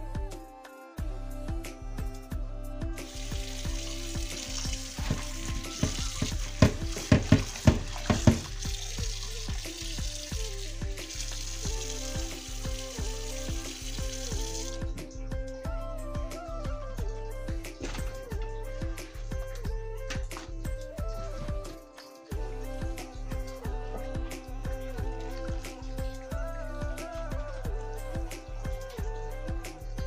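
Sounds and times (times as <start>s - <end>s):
background music with beat: 0.0s - 30.0s
tap water running into bowl: 3.0s - 15.1s.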